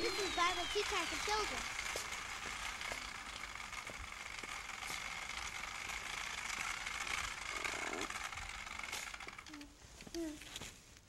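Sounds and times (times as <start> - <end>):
thin high whine: 0.0 - 3.9
walker wheels clicking and rattling: 0.0 - 10.7.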